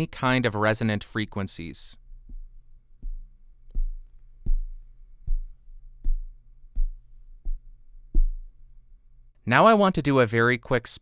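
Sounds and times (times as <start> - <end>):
fingers tapping microphone body: 2.2 - 8.6.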